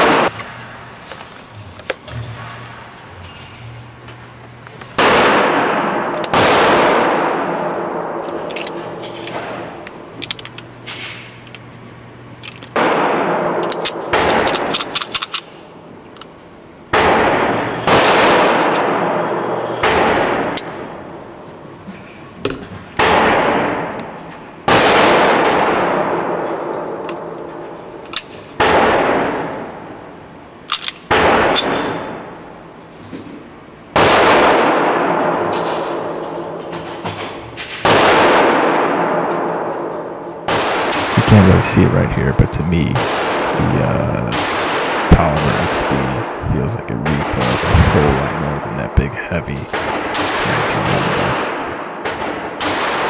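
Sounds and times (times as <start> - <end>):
pistol shots with echo: 0.0 - 0.3, 5.0 - 10.1, 12.8 - 15.4, 16.9 - 21.1, 24.6 - 29.9, 31.0 - 32.3, 33.9 - 36.6, 37.8 - 41.6, 42.8 - 46.4, 49.7 - 53.0.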